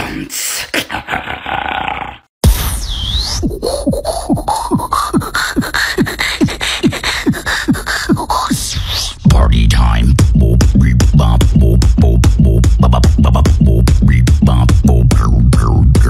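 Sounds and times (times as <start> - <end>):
beatboxing into a microphone: 3.4 - 16.0
deep vocal kick drum beats: 3.7 - 16.0.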